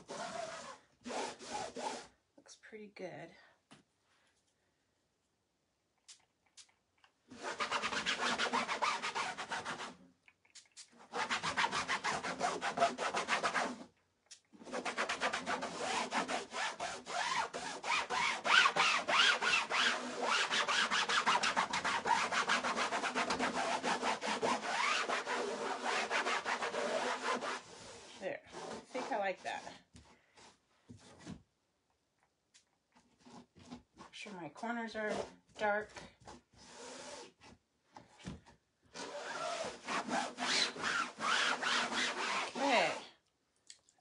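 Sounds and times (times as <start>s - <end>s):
cloth rag scrubbing a board: 0.0s - 2.0s, 7.3s - 10.0s, 14.6s - 31.2s, 39.0s - 43.0s.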